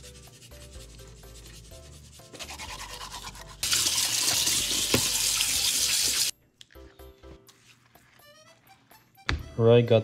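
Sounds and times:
hand rubbing salt on fish: 0:00.0 - 0:03.6
tap water splashing into sink: 0:03.7 - 0:05.6.

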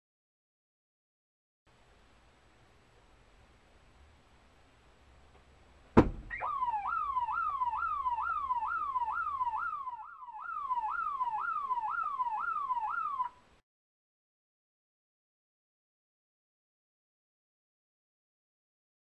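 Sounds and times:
sharp bang: 0:06.0 - 0:06.5
car alarm wailing: 0:06.0 - 0:13.6.

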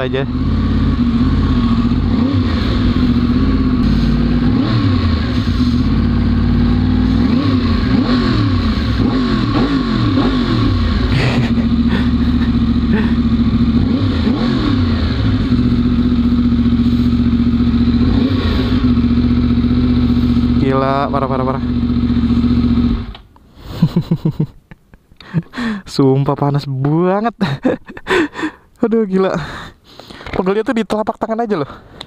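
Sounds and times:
motorcycle engine revving: 0:00.0 - 0:23.2.

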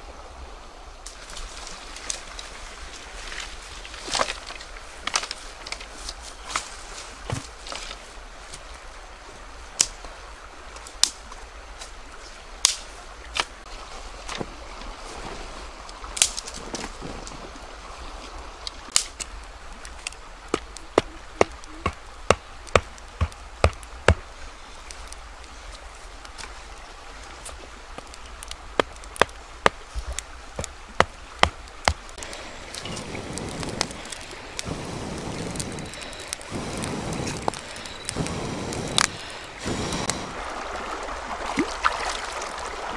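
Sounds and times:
axe chopping firewood: 0:20.5 - 0:24.3, 0:28.7 - 0:32.1.

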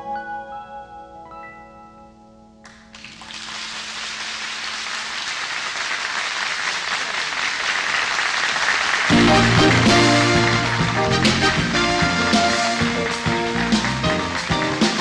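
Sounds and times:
studio audience applauding: 0:02.7 - 0:15.0
song note: 0:09.1 - 0:13.2.

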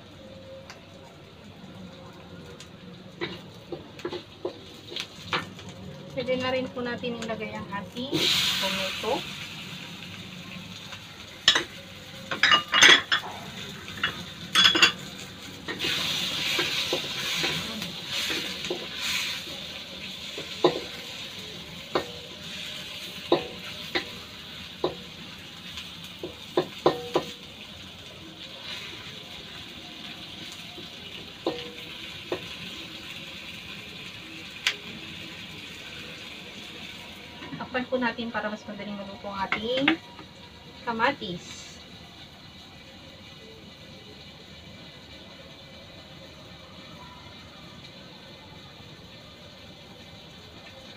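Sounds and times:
light sizzle of frying: 0:00.0 - 0:50.9
wooden spatula knocking a wok: 0:20.4 - 0:21.0, 0:21.9 - 0:22.2, 0:23.2 - 0:24.1, 0:26.2 - 0:27.4, 0:31.4 - 0:32.6.

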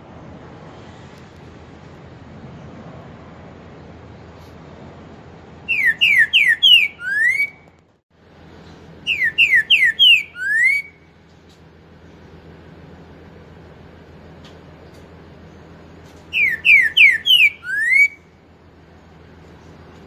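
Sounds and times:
bird singing whistled notes: 0:05.7 - 0:07.7, 0:09.0 - 0:11.2, 0:16.3 - 0:18.3.

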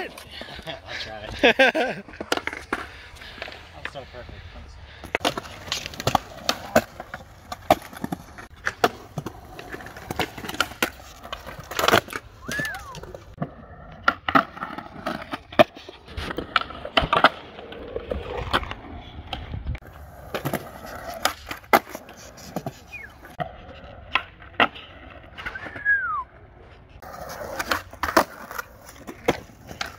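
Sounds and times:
skateboard wheels rolling on concrete: 0:00.0 - 0:29.9
skateboard clacks and knocks: 0:27.1 - 0:29.9.

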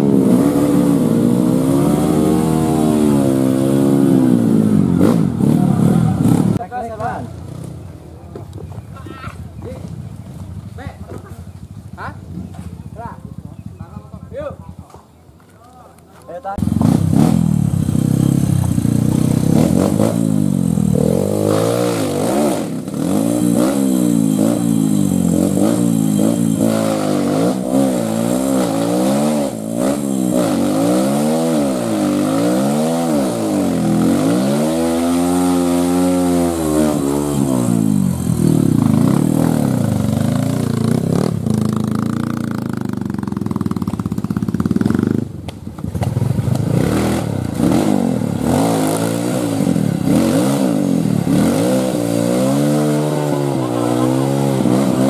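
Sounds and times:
motorcycle engine revving: 0:00.0 - 0:15.0, 0:16.4 - 0:55.0.

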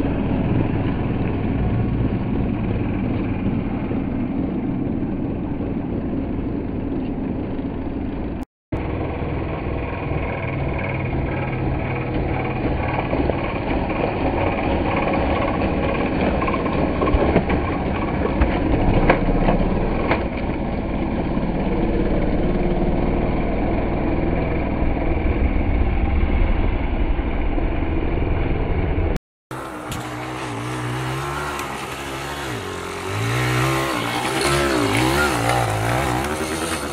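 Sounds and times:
dirt bike engine revving: 0:29.5 - 0:36.9.

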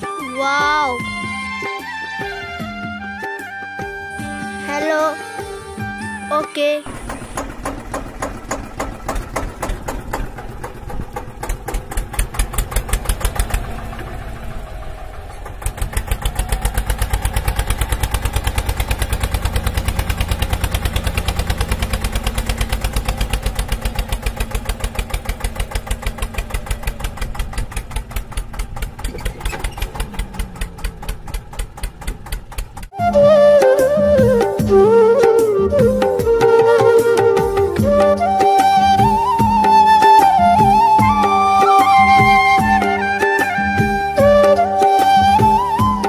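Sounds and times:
tractor engine knocking: 0:06.9 - 0:33.0.

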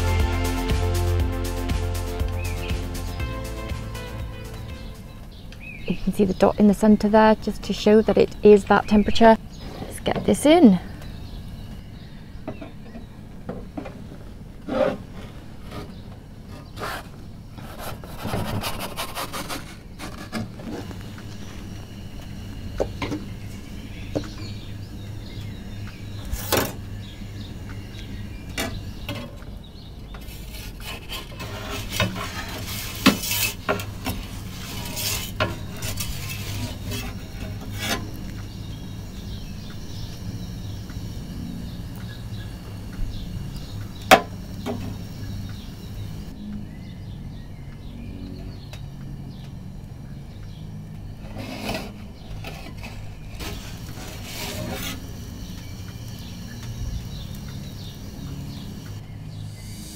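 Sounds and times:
metal pizza peel scraping: 0:14.7 - 0:21.6, 0:30.2 - 0:38.3, 0:51.2 - 0:55.2
gas burner rushing: 0:19.8 - 0:29.4, 0:30.2 - 0:46.3, 0:51.2 - 0:59.9.

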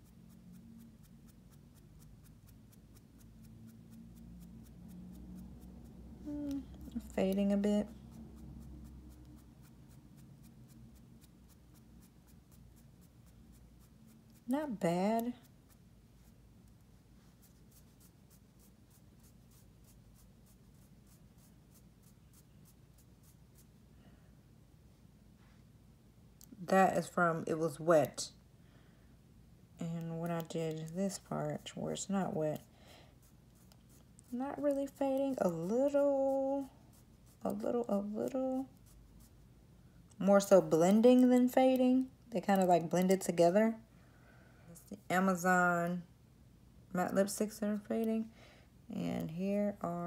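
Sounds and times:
fingertip rubbing on skin: 0:00.0 - 0:23.8, 0:30.0 - 0:39.4
faint low hum: 0:00.0 - 0:50.0.

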